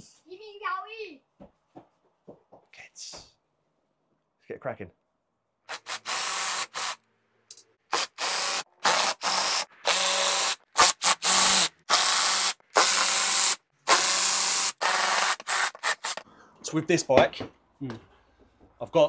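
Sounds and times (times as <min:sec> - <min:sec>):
cordless drill whirring: 0:05.7 - 0:07.0, 0:07.9 - 0:16.2.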